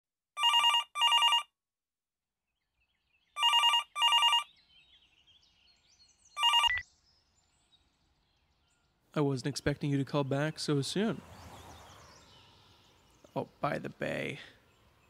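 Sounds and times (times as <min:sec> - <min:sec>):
telephone bell ringtone: 0:00.4 - 0:01.5, 0:03.4 - 0:04.5, 0:06.4 - 0:06.8.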